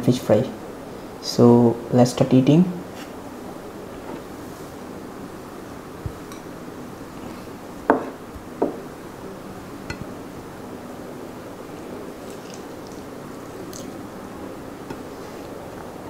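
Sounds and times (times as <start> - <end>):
tableware knocking and clinking: 7.9 - 8.8.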